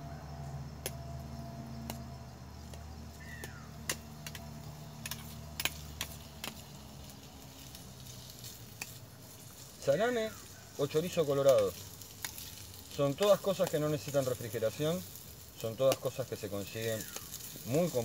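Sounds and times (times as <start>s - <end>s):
onion sizzling in frying pan: 1.1s - 18.0s
utensil clicking against pan: 2.6s - 6.7s, 8.7s - 9.0s.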